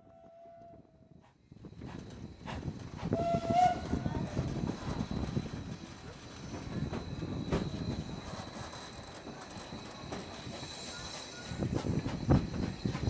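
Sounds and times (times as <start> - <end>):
steam whistle blast: 3.2 - 4.0
carriage wheels clattering on rails: 3.9 - 13.0.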